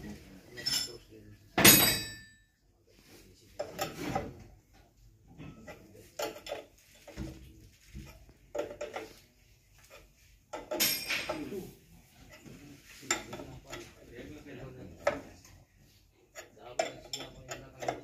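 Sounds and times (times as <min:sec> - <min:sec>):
spanners clinking on metal: 0:00.5 - 0:02.5, 0:09.9 - 0:11.6, 0:16.4 - 0:18.0.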